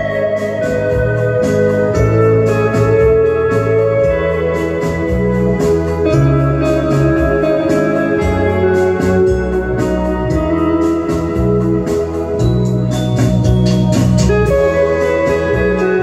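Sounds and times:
bass line: 0:00.0 - 0:16.0
electric guitar melody: 0:00.0 - 0:16.0.

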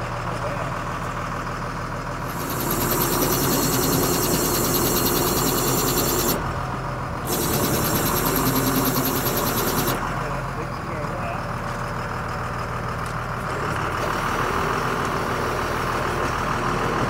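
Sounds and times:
engine idling: 0:00.0 - 0:17.0
pump mechanical clatter: 0:02.2 - 0:10.2.

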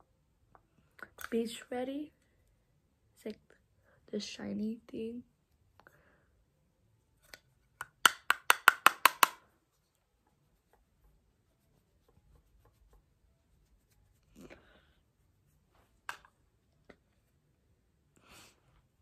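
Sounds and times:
brush tapping plastic compact: 0:07.2 - 0:09.5, 0:16.0 - 0:16.4.

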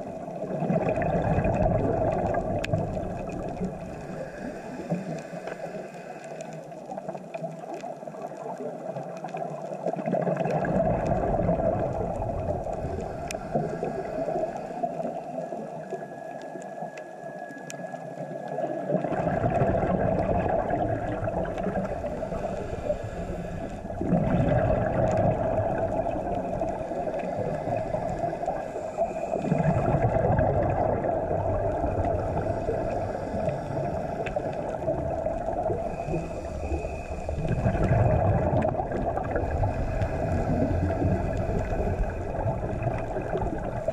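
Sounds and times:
exhaled bubbles gurgling underwater: 0:00.0 - 0:43.9
regulator inhales: 0:03.8 - 0:06.6, 0:12.8 - 0:15.6, 0:21.8 - 0:24.0, 0:26.8 - 0:29.8, 0:32.2 - 0:34.8, 0:35.8 - 0:37.7, 0:39.4 - 0:42.4.

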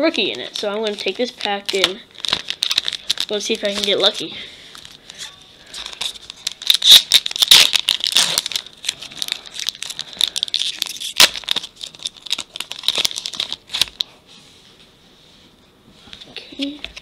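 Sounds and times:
plastic wrapper tearing and crinkling: 0:00.2 - 0:05.2, 0:05.8 - 0:14.1.

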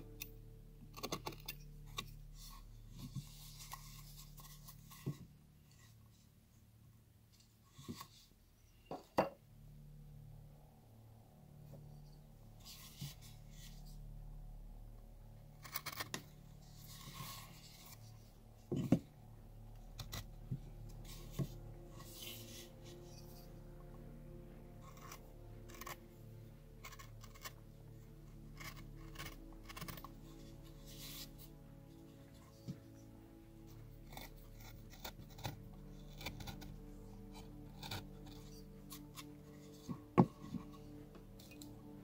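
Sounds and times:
steady low hum: 0:00.0 - 0:42.0
knife scraping bark: 0:24.7 - 0:31.6, 0:33.6 - 0:41.7.

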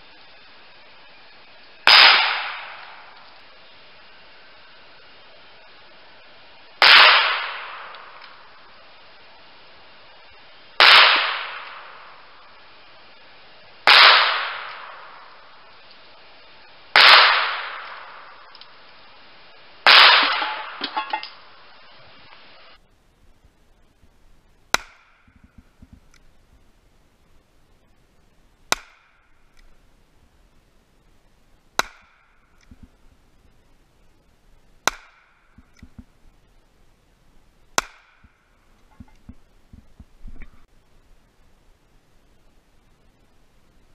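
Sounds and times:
revolver gunshots: 0:01.9 - 0:03.2, 0:06.8 - 0:08.2, 0:10.8 - 0:12.2, 0:13.9 - 0:15.4, 0:17.0 - 0:18.5, 0:19.8 - 0:20.8.

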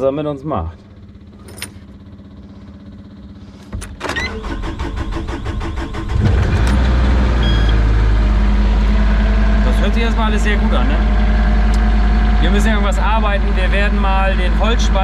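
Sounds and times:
diesel engine running: 0:00.0 - 0:15.0
starter motor cranking: 0:03.6 - 0:07.7.

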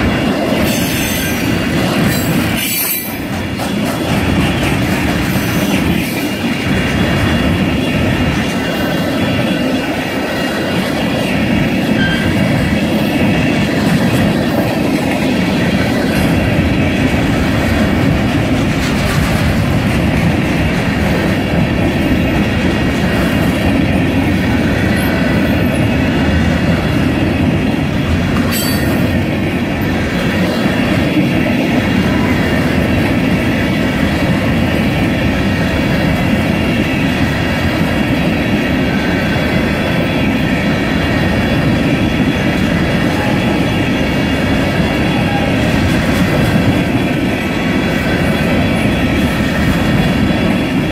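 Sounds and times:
freight train rumbling past: 0:00.0 - 0:50.9
wheels clattering over rail joints: 0:13.4 - 0:25.8.

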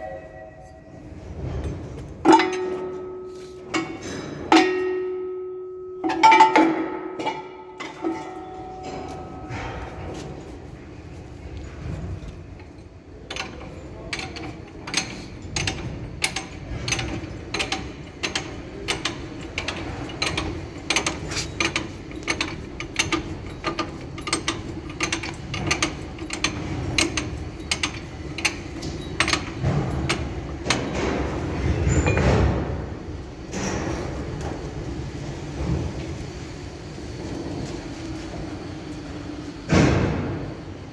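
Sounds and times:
sharp metallic knocks and clinks: 0:01.4 - 0:10.5, 0:11.7 - 0:34.0.

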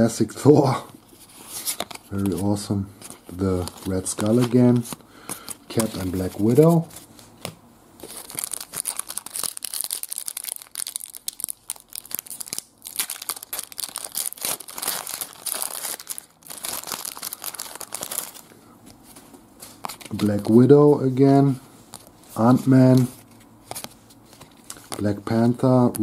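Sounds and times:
foil wrapper tearing and crinkling: 0:08.0 - 0:18.5.

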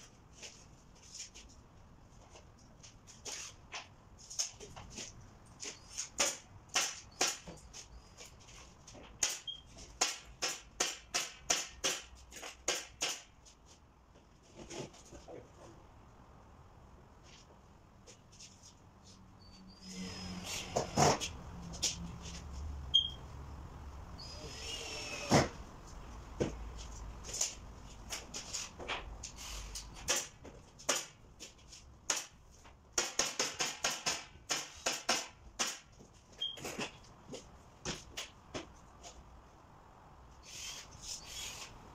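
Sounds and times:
pneumatic staple gun shots: 0:25.0 - 0:25.6
nail gun firing: 0:33.0 - 0:35.9.

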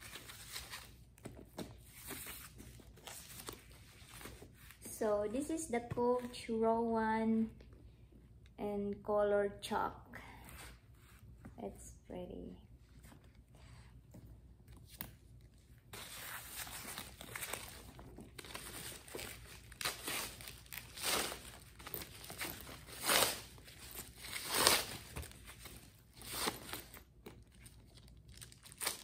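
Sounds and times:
plastic wrapping crinkling: 0:16.0 - 0:29.0.

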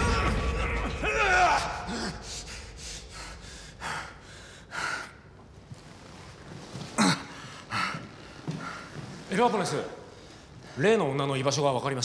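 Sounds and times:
man breathing hard: 0:01.8 - 0:06.2.

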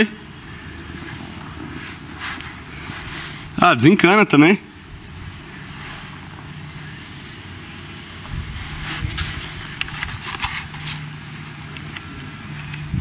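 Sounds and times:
faint hum: 0:00.0 - 0:13.0
low outdoor rumble: 0:04.6 - 0:13.0.

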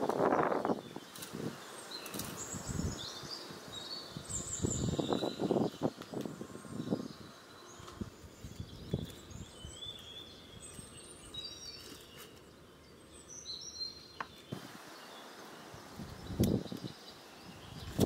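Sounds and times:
birds chirping: 0:00.0 - 0:18.0
dry twigs rustling and snapping: 0:01.0 - 0:02.5.

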